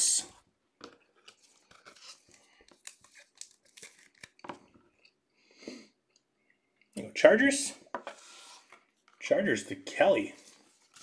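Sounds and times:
plastic card sleeve crinkling: 1.2s - 4.7s, 10.2s - 11.0s.

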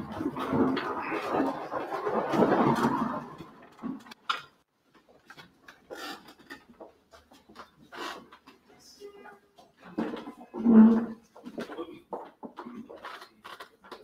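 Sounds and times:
crowd noise: 0.0s - 4.0s.

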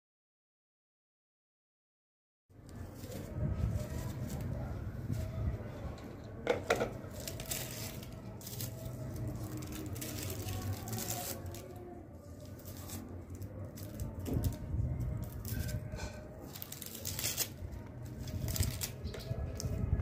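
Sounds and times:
onion skins crackling: 6.3s - 20.0s.

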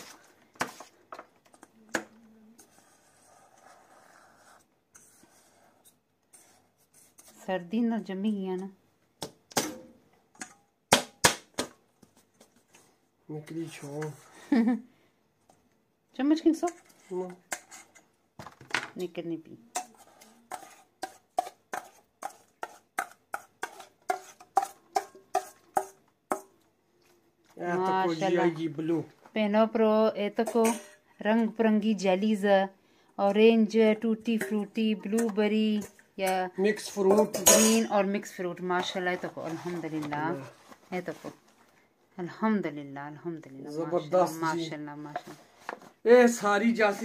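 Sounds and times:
spoon clinking in metal bowl: 37.4s - 37.9s.

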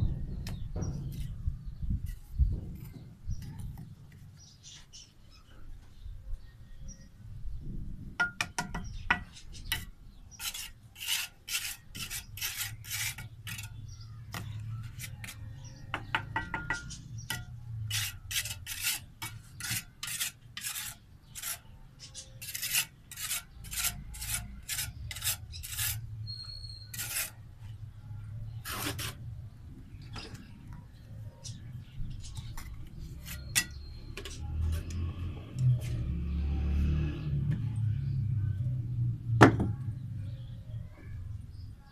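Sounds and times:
trowel scraping mortar on bricks: 8.4s - 27.5s, 28.5s - 29.3s, 32.2s - 35.0s.

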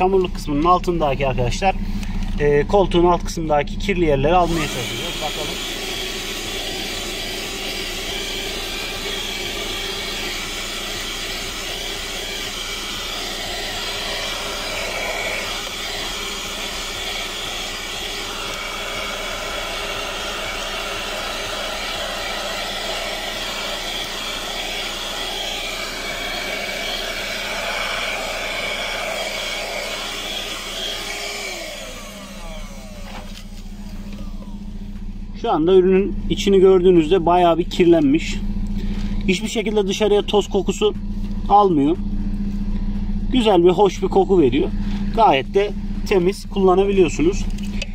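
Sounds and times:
handheld vacuum cleaner running: 4.2s - 35.1s, 46.0s - 47.9s.

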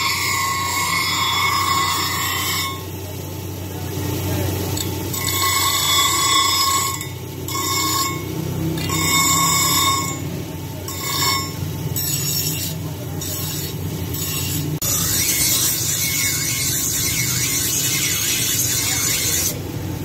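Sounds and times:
blade screeching on grinding wheel: 0.0s - 3.1s, 4.6s - 19.7s
bench grinder motor running: 0.0s - 19.9s.

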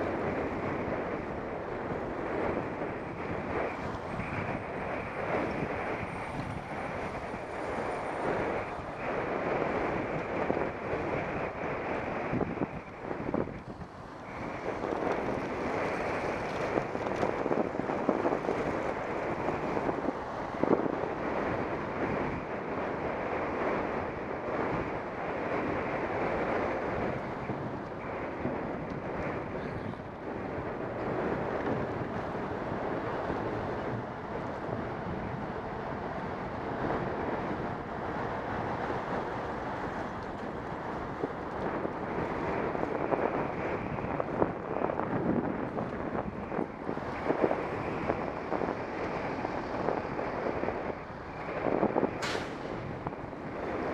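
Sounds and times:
wind rushing over microphone: 0.0s - 53.9s.

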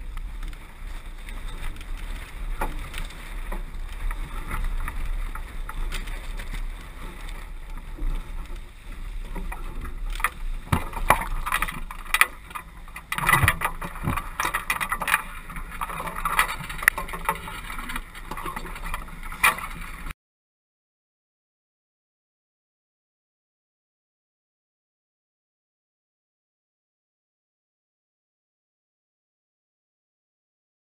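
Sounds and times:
deck and rigging knocks and rattles: 0.0s - 20.1s
water rushing along a hull: 0.0s - 20.1s.

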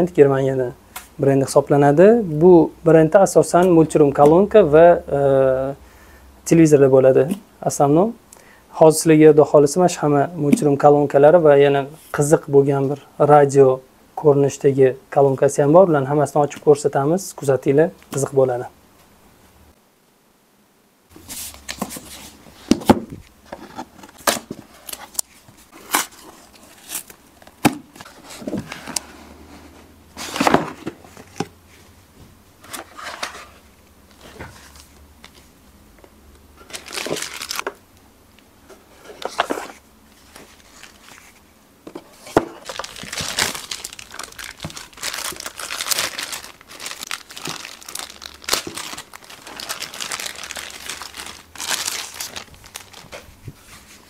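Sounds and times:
cardboard packaging handled: 21.2s - 29.2s, 30.2s - 31.5s, 32.6s - 35.4s, 36.6s - 37.8s, 38.8s - 54.0s
plastic bag crinkling: 36.6s - 37.8s, 42.6s - 53.3s.

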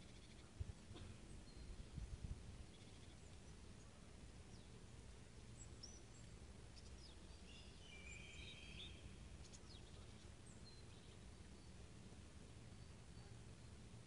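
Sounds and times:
low steady rumble: 0.0s - 14.0s
birds chirping: 2.6s - 12.0s.

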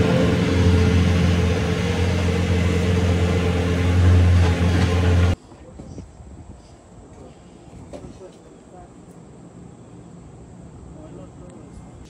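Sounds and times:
engine running steadily: 0.0s - 5.4s.

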